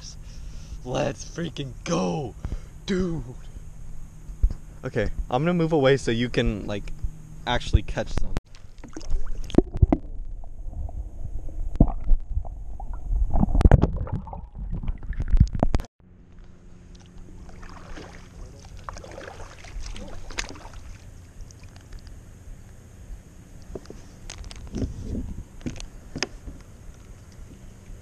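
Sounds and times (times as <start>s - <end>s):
muffled underwater rumbling and splashing: 8.2s - 15.9s, 16.9s - 22.2s
water lapping: 16.9s - 22.0s
paddle swishing in water: 17.2s - 21.8s.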